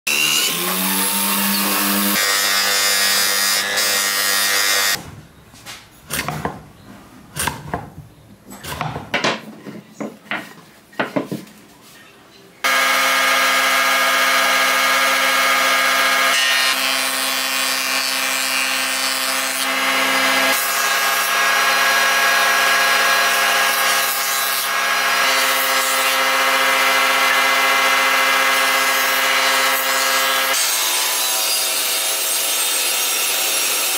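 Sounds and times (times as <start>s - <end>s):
woodworking machine cutting board: 0.1s - 5.0s, 12.6s - 33.9s
power drill motor running: 12.6s - 16.9s.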